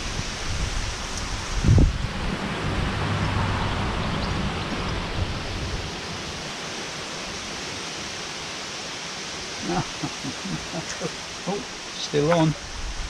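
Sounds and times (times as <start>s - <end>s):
outdoor hiss: 0.0s - 2.2s, 4.2s - 13.0s.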